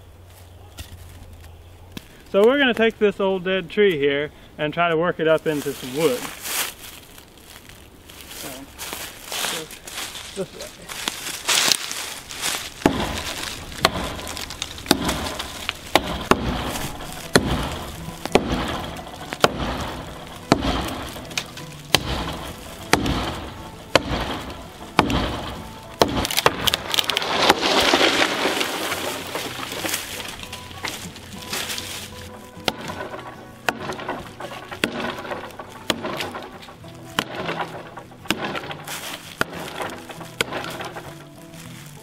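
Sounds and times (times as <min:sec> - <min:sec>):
tree crashing down: 0:05.5 - 0:42.0
axe chopping tree trunk: 0:11.0 - 0:41.9.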